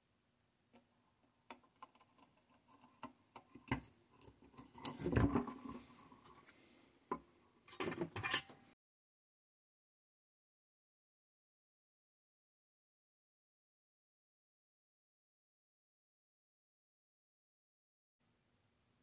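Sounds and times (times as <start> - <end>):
circuit board scraping and knocking: 1.8 - 6.4.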